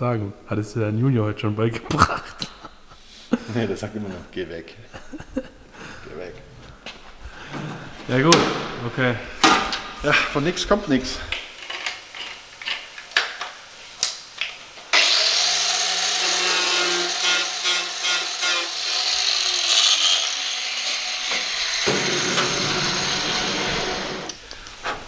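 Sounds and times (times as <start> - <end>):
angle grinder whining: 14.9 - 24.4.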